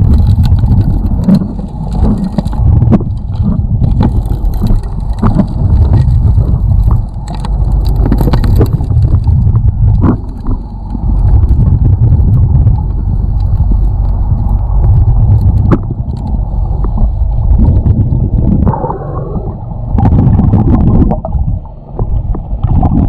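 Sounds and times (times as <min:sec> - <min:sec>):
dredge low rumble: 0:00.0 - 0:23.0
stones knocking together underwater: 0:00.1 - 0:10.6, 0:15.4 - 0:16.0.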